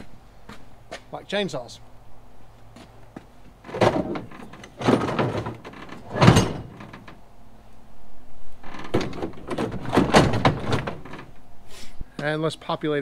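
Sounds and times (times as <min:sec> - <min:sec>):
chainsaws knocking in truck bed: 0:03.7 - 0:07.1, 0:08.8 - 0:11.3.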